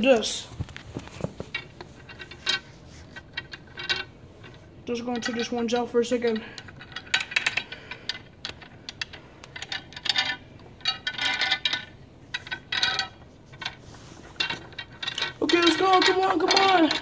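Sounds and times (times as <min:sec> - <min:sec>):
toy pieces clicking and clacking: 0:14.4 - 0:17.0.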